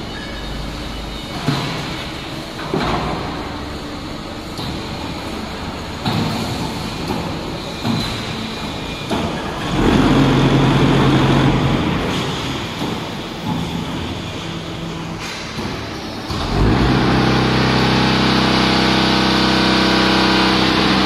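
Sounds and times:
block making machine running: 0.6 - 21.0.

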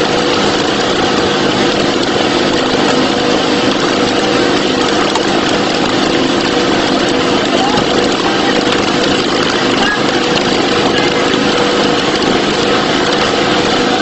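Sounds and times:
boat engine droning: 0.0 - 14.0.

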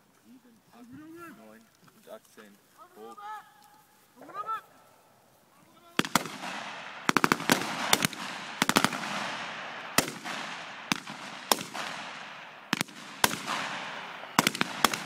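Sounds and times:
rifle shots: 6.0 - 15.0
rolling echo of gunshots: 6.0 - 15.0.

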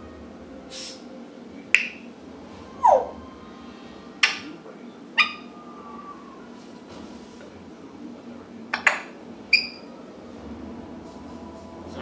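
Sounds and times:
parrot ringing ping: 5.2 - 5.5.

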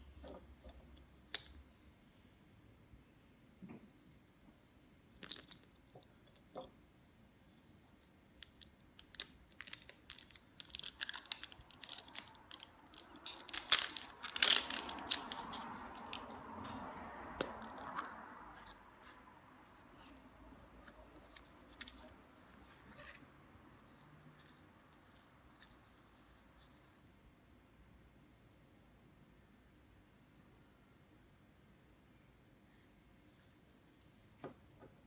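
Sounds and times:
plastic wrap crackling and rustling: 8.4 - 16.8.

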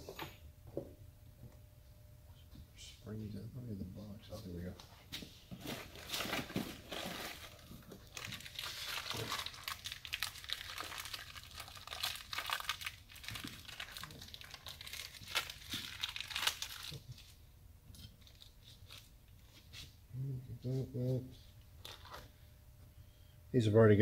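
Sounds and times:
plastic bag crinkling: 5.6 - 17.4.

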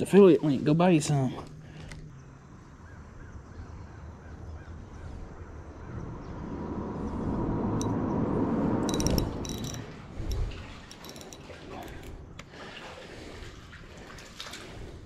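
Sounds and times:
fishing reel whirring: 8.8 - 12.2.

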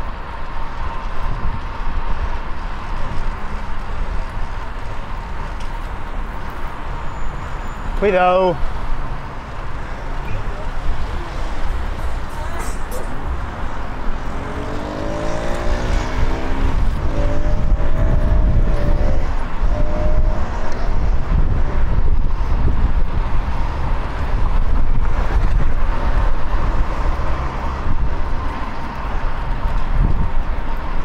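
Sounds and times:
traffic rumble: 0.0 - 31.0
passing vehicle engine hum: 8.6 - 31.0.

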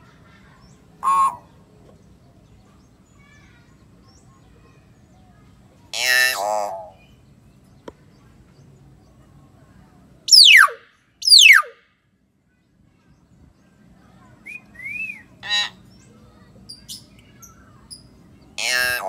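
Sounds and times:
harsh bird call: 1.0 - 1.5, 10.3 - 11.8, 18.6 - 19.0.

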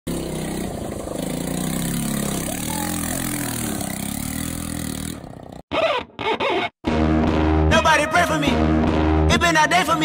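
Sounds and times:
scooter engine revving: 0.1 - 5.7.

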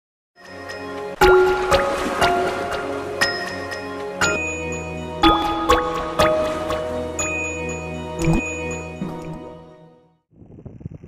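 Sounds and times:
water drip and splash effects: 1.2 - 3.6, 5.3 - 7.2, 8.2 - 9.5.

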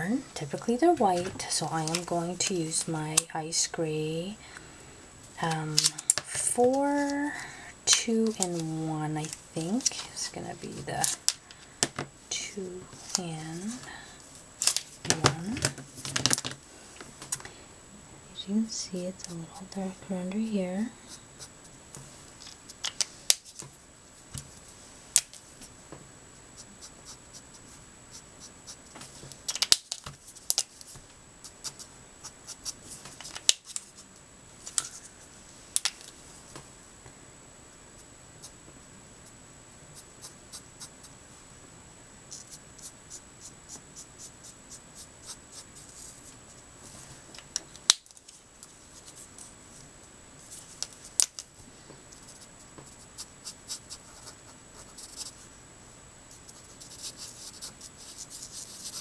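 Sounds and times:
marker scratching on card: 52.2 - 55.4, 56.4 - 59.0.

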